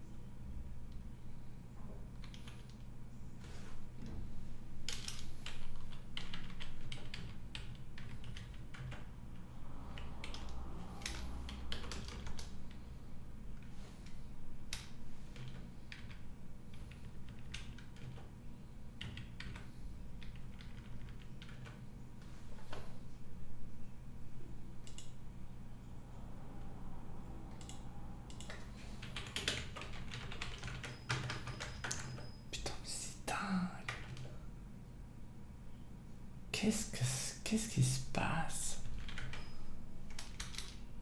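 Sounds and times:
steady low hum: 0.0s - 41.0s
computer keyboard typing: 2.2s - 2.8s, 4.9s - 12.8s, 13.6s - 18.2s, 19.0s - 21.8s, 24.8s - 25.2s, 27.5s - 32.4s, 33.9s - 34.3s, 38.9s - 40.8s.

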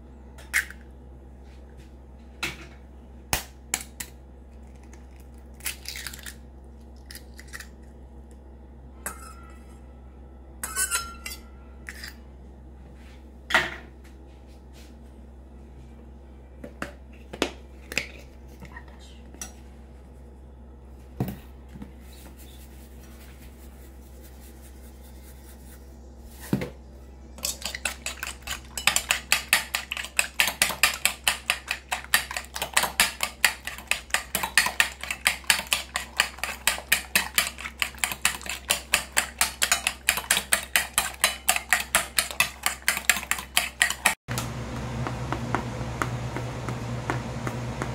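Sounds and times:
eggs cracked with a spoon: 3.3s - 7.8s, 27.4s - 44.2s
fork beating eggs in a bowl: 27.4s - 44.2s.

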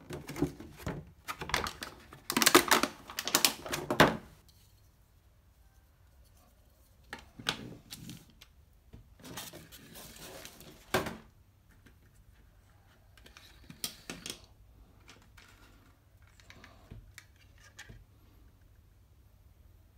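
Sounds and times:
plastic packaging rustling: 0.0s - 4.3s.

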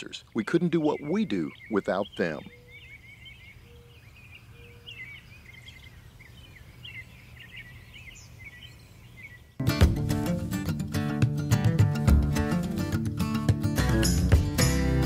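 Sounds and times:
small birds chirping: 0.0s - 9.6s
guitar music: 9.6s - 15.0s.

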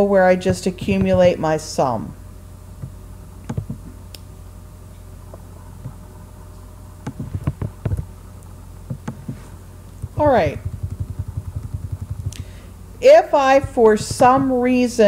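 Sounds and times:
steady low hum: 0.0s - 15.0s
keyboard and mouse clicks: 2.8s - 3.9s, 7.0s - 8.1s, 8.9s - 9.4s, 10.0s - 12.4s.

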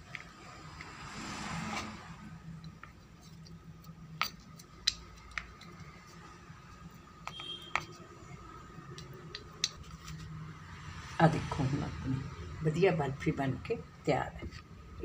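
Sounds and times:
spoon tapping plastic bowl: 7.2s - 8.0s.

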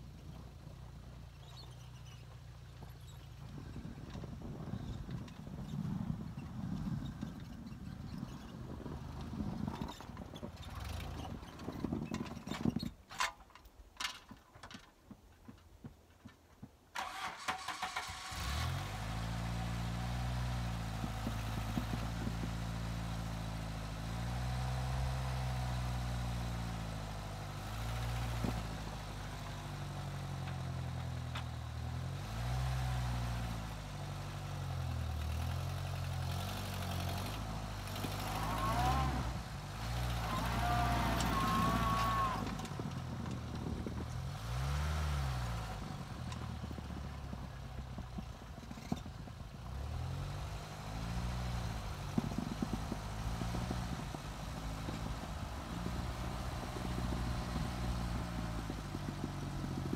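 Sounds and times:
car engine running: 18.2s - 59.9s.

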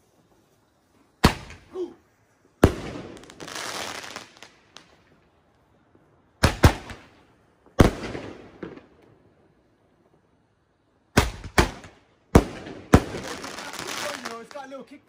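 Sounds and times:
firework shot fizzing hiss: 0.0s - 5.8s
firework bangs: 1.2s - 1.8s, 2.5s - 5.2s, 6.0s - 9.4s, 11.1s - 14.6s.

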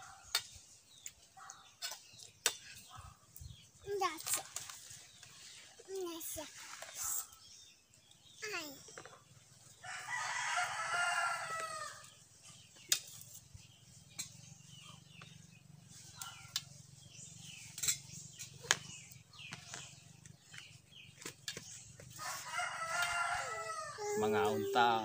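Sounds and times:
rooster crowing: 9.8s - 12.0s, 22.2s - 24.8s.

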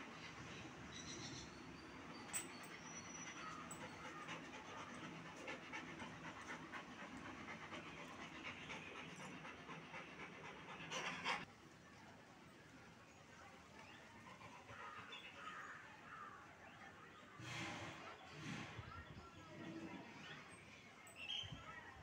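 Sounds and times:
dog panting: 2.1s - 11.5s.

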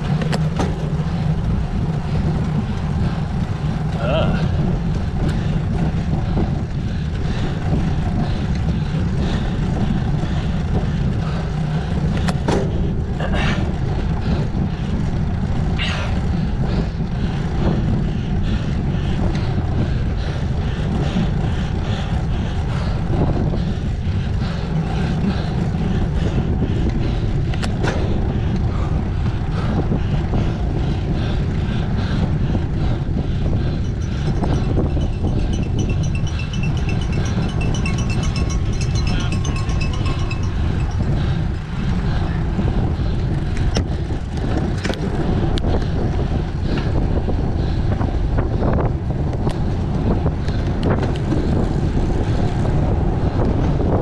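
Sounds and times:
road noise: 0.0s - 54.0s
wind rumble: 0.0s - 54.0s.

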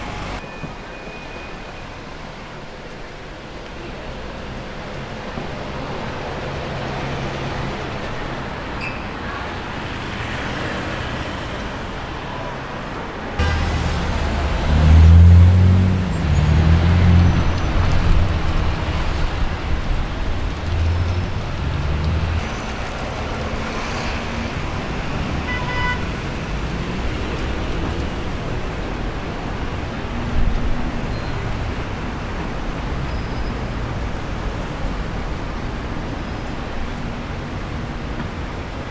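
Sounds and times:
street traffic: 0.0s - 38.9s
car engine revving: 13.4s - 17.6s.

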